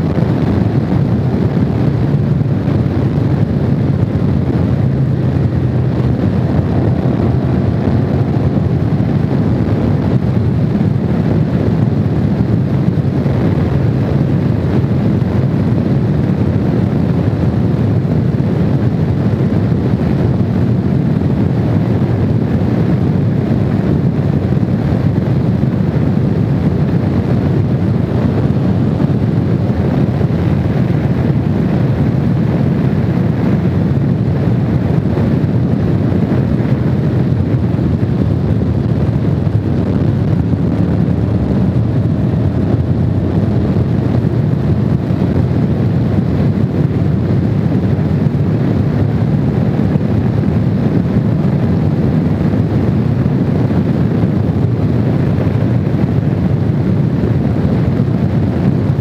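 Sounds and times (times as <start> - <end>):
motorcycle engine cruising: 0.0 - 20.4
wind on microphone: 0.0 - 59.0.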